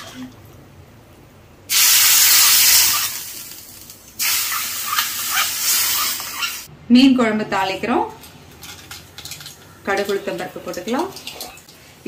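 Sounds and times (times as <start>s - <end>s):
hot oil sizzling: 1.7s - 6.7s.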